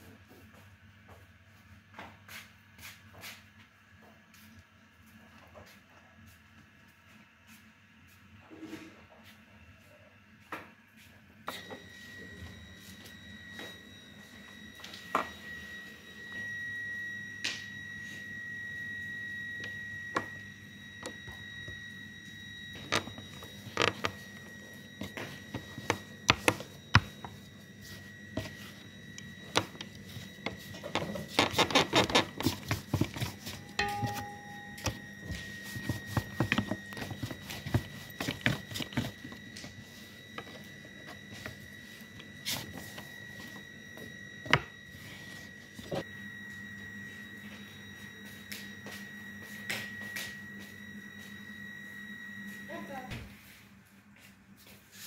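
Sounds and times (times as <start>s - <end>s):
rolling pin rolling dough: 17.8s - 53.6s.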